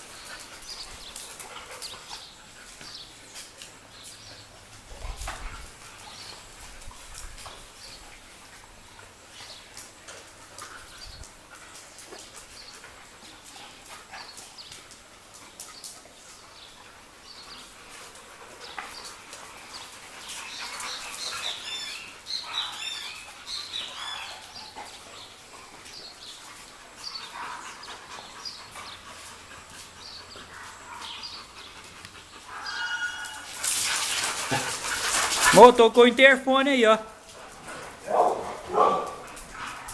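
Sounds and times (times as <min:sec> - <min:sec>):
puppies whining and yelping: 0:27.0 - 0:34.1.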